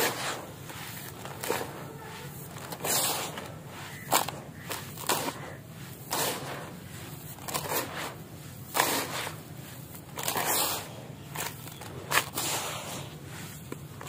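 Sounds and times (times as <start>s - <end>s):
grit poured into a bucket: 0.0s - 10.9s.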